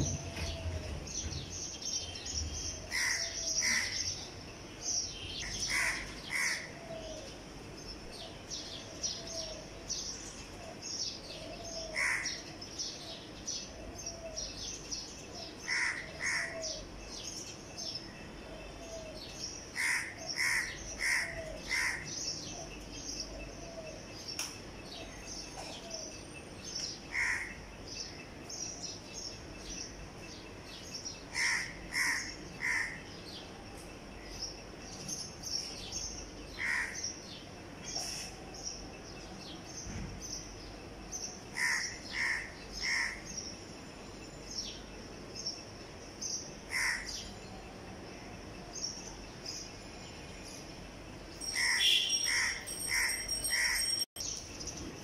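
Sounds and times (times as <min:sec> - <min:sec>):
crow cawing: 0:02.9 - 0:04.0, 0:15.7 - 0:16.6, 0:19.8 - 0:22.1, 0:27.1 - 0:27.6, 0:36.6 - 0:37.0, 0:41.6 - 0:43.2, 0:46.7 - 0:47.1
small birds chirping: 0:51.3 - 0:55.0.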